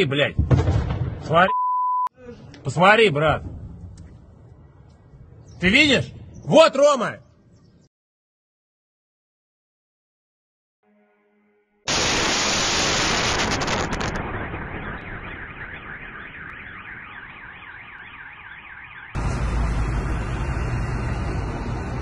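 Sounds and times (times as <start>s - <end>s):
loud explosion blast: 0.4s - 1.3s, 11.9s - 17.0s
car alarms wailing: 14.2s - 19.2s.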